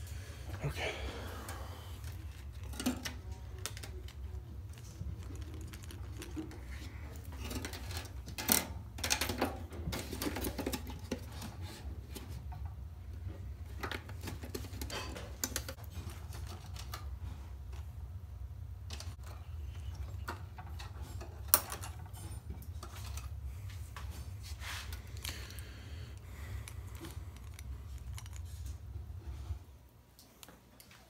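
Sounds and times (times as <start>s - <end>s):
steady low hum: 0.0s - 9.1s, 15.2s - 31.0s.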